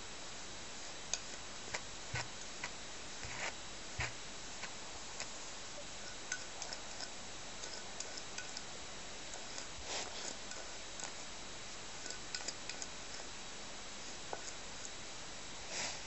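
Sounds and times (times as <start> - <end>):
steady hiss: 0.0 - 16.0
grooming tool clicking through fur: 12.0 - 13.3.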